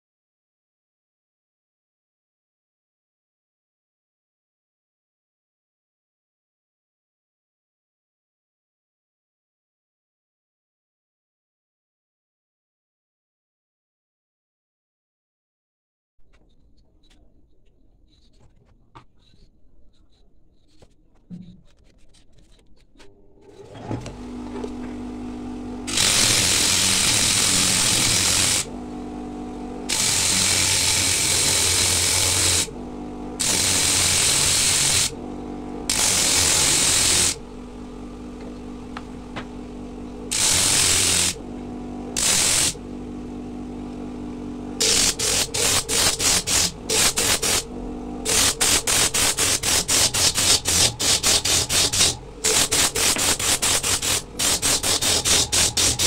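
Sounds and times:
grinder motor humming: 23.4 - 56.0
coconut shell sanding on disc: 25.9 - 28.7, 29.9 - 35.2, 35.9 - 37.5, 40.3 - 41.4, 42.2 - 42.8, 44.8 - 56.0.

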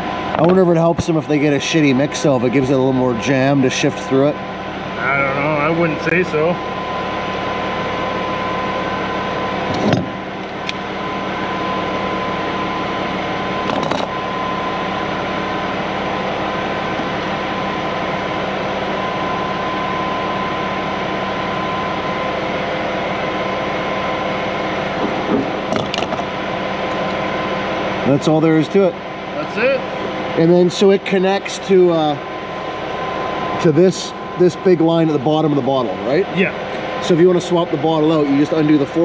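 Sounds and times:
machine hum with whine: 0.0 - 39.0
sharp clicks and knocks: 13.7 - 14.1, 25.0 - 26.2.

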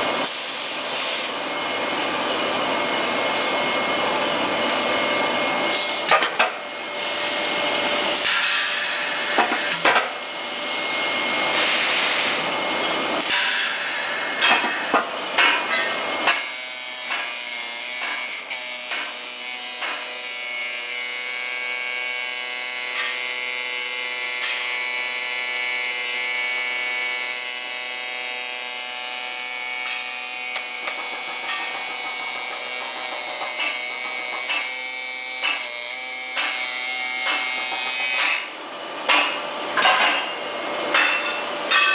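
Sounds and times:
loud noisy background: 0.0 - 21.5, 27.0 - 41.9
machine hum: 12.3 - 41.8.

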